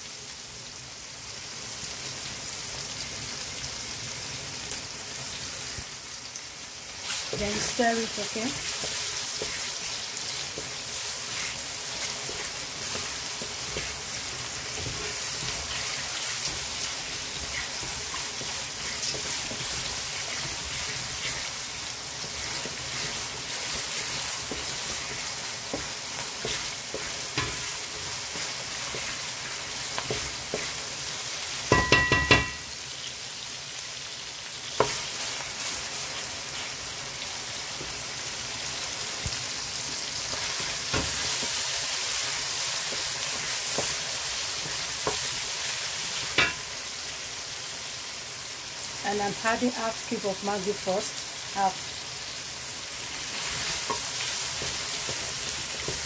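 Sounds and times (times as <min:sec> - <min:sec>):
food sizzling in hot oil: 0:00.0 - 0:56.0
wooden spoon knocking pot: 0:31.7 - 0:32.7.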